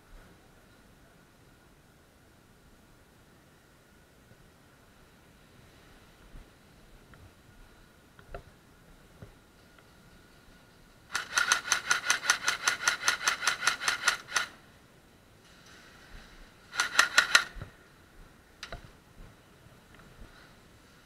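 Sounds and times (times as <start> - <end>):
airsoft gun firing bursts: 11.1 - 14.6, 16.7 - 17.6.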